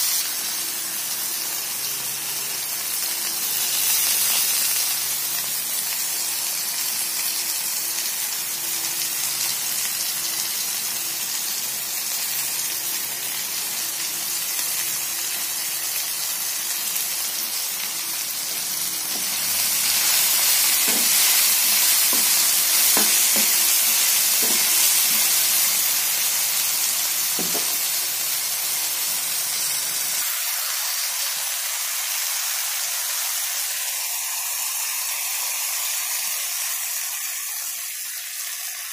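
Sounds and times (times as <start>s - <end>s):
vegetables sizzling in oil: 0.0s - 38.9s
spatula knocking against pan: 20.8s - 23.7s, 24.4s - 25.3s, 27.4s - 27.8s.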